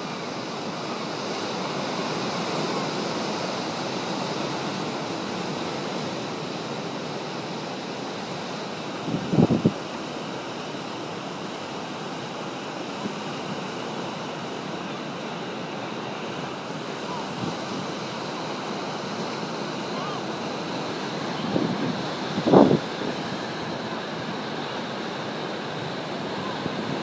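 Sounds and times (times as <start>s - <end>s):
wind buffeting microphone: 9.0s - 9.9s, 20.6s - 24.4s, 25.8s - 27.0s
surf breaking on rocks: 12.7s - 27.0s.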